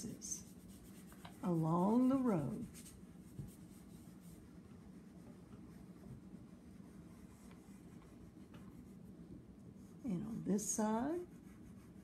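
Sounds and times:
chalk pastel scratching on paper: 0.0 - 9.1, 9.7 - 12.0.

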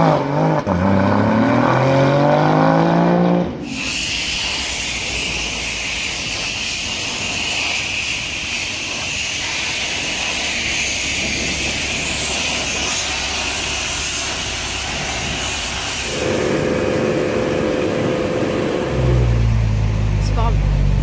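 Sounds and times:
pressure washer spraying: 3.6 - 19.2
car engine idling: 4.1 - 21.0.

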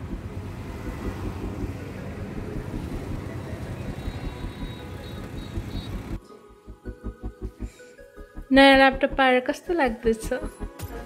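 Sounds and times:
auto-rickshaw engine and road noise: 0.0 - 6.2
background music with steady beat: 0.0 - 11.0.

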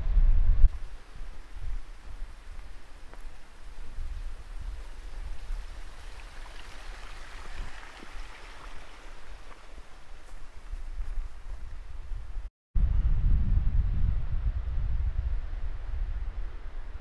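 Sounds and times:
wind buffeting microphone: 0.0 - 17.0
steady rushing hiss: 0.7 - 12.5.

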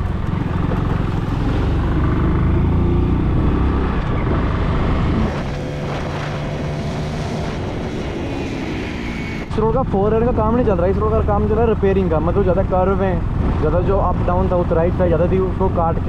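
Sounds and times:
motorcycle engine rumble: 0.0 - 16.0.

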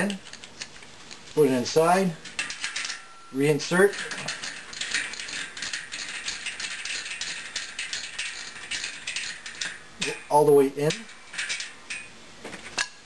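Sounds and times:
bicycle freewheel ratcheting clicks: 3.9 - 9.8.

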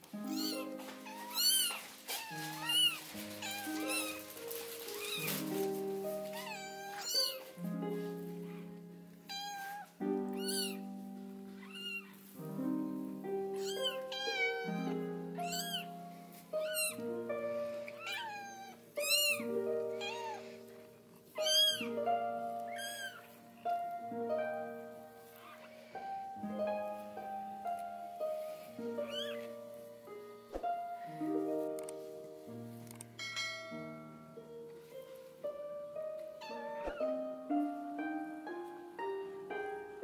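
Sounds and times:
soft piano music: 0.0 - 40.0
kitten mewing: 0.3 - 5.5, 6.2 - 7.5, 9.2 - 10.9, 11.6 - 12.2, 13.6 - 15.9, 16.6 - 17.0, 17.8 - 20.8, 21.4 - 21.9, 22.7 - 23.4, 29.0 - 29.4, 36.4 - 37.1.

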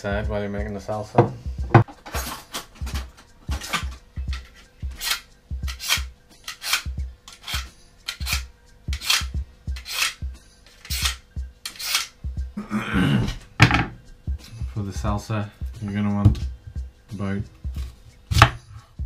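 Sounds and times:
knife scraping through sharpener: 4.4 - 12.1.

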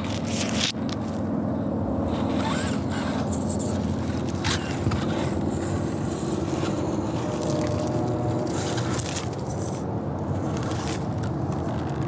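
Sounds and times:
electric motor whirring: 2.0 - 9.8
tyres crunching on soil: 2.1 - 12.0.

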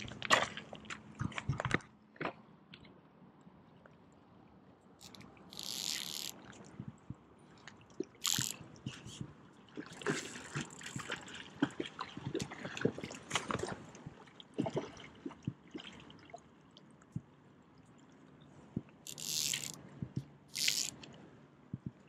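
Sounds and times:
water splashing and trickling: 0.0 - 2.9, 4.9 - 19.8, 20.5 - 21.2.

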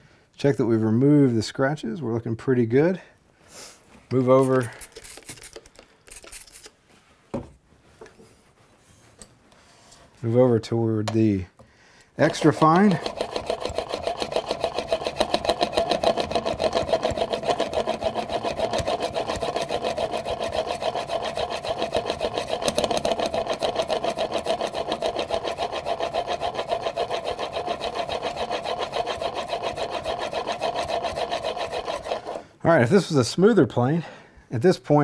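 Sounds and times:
blade scraping on sharpening stone: 12.2 - 32.4.

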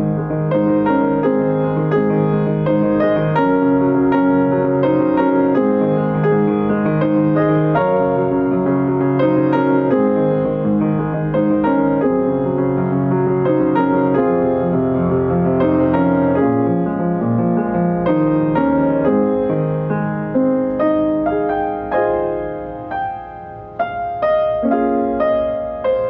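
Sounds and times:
piano music: 0.0 - 26.0.

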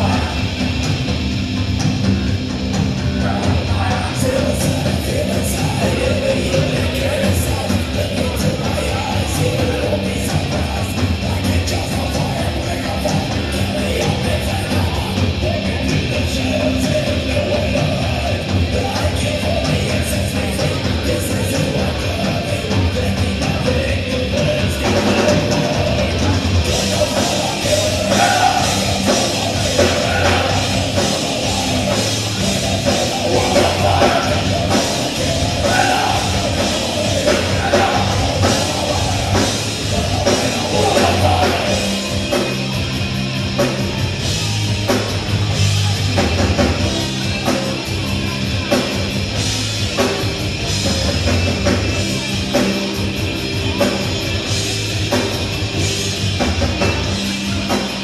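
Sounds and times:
loud heavy rock band: 0.0 - 58.0
person singing: 3.1 - 43.0.

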